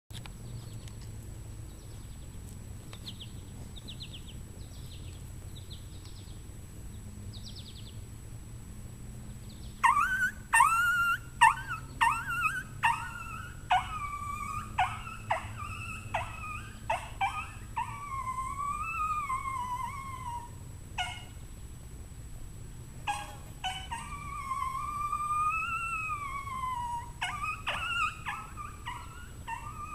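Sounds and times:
coyote call yips and howl: 9.8 - 21.4, 23.0 - 29.9.

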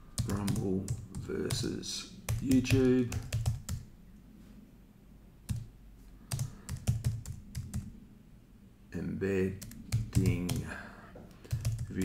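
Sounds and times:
typing on computer keyboard: 0.2 - 1.6, 2.3 - 3.9, 6.3 - 7.9, 9.6 - 10.7, 11.4 - 12.0.

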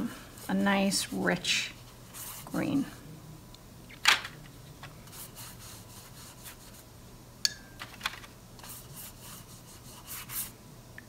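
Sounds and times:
brush stroking paper: 0.4 - 2.8, 5.1 - 6.9, 8.6 - 10.6.

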